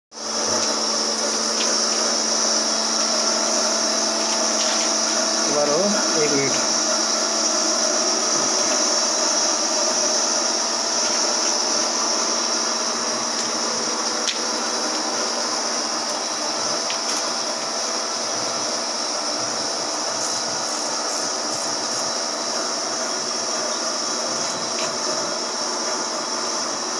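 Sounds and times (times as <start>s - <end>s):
machinery hum: 0.2s - 26.9s
high hiss: 0.7s - 26.8s.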